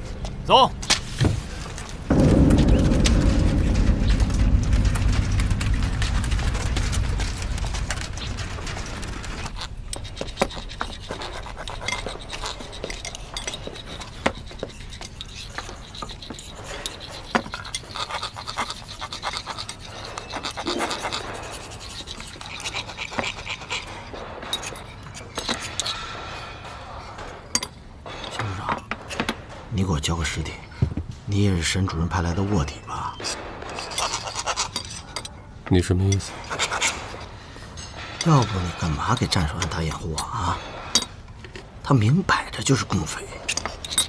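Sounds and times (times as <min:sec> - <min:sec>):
low rumble: 0:01.4 - 0:10.0
metal parts and tools clicking: 0:01.8 - 0:29.4, 0:33.4 - 0:42.0, 0:42.6 - 0:44.0.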